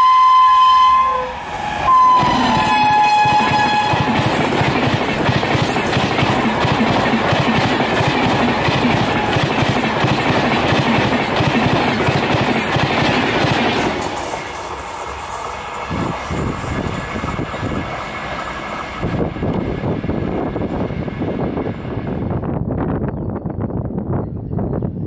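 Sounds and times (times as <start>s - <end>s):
train wheels clattering on rails: 2.1s - 20.7s.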